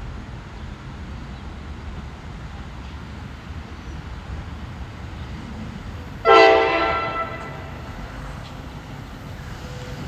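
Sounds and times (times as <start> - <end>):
train horn blast: 6.2 - 8.1.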